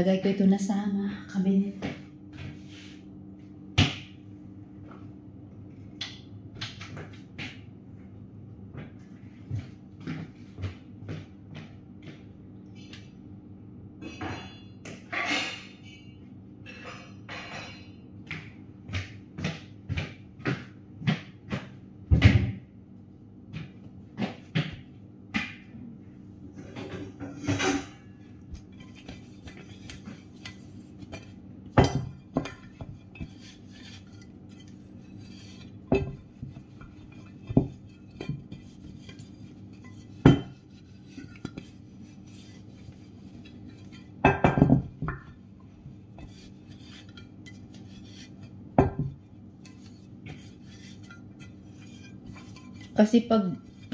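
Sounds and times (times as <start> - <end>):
low steady hum: 0.0 - 53.9
dishes and cutlery clinking: 14.0 - 18.5, 26.6 - 45.4, 46.1 - 53.9.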